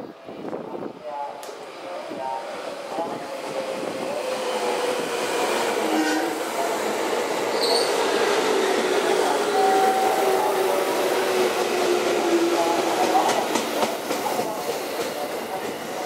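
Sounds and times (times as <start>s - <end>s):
electric train slowing: 1.5s - 16.0s
high squeak: 7.5s - 8.0s.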